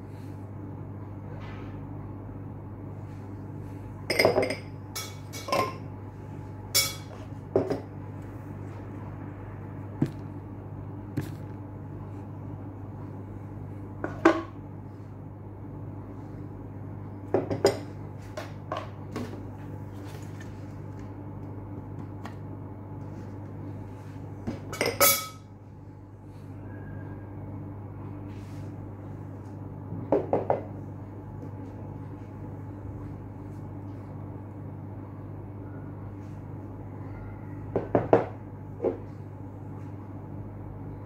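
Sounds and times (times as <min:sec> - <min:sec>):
steady low hum: 0:00.0 - 0:41.0
glass bowls and spoon clinking: 0:04.1 - 0:05.8, 0:06.8 - 0:07.1, 0:24.7 - 0:25.5.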